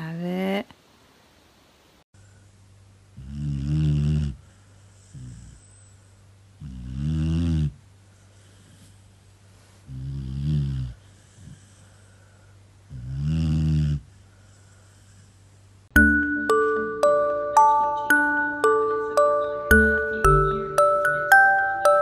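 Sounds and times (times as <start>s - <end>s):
quiet breathing: 2.2s - 2.8s, 4.3s - 6.9s, 8.0s - 13.2s, 13.9s - 15.8s
person snoring: 3.2s - 4.4s, 9.9s - 11.9s, 12.9s - 14.1s.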